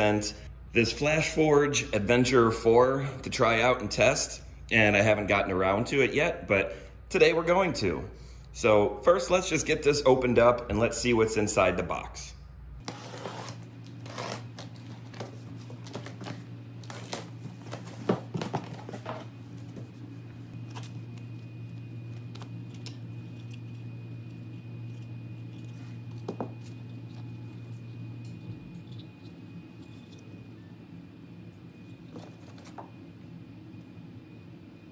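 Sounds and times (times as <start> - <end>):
steady low hum: 0.0 - 34.9
packing tape slit and ripped: 12.8 - 15.2.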